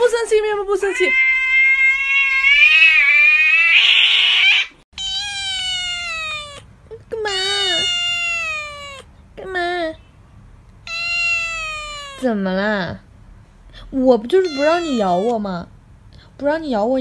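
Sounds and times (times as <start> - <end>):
cat yowling: 0.8 - 6.7, 7.3 - 9.1, 10.8 - 12.3, 14.4 - 15.4
cat hissing: 0.9 - 6.7, 7.3 - 9.1, 10.8 - 12.3, 14.4 - 15.3.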